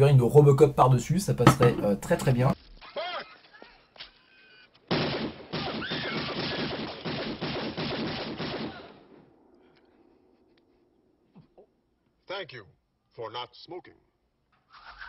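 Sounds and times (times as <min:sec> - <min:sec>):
rapid gunfire: 0:04.9 - 0:09.0.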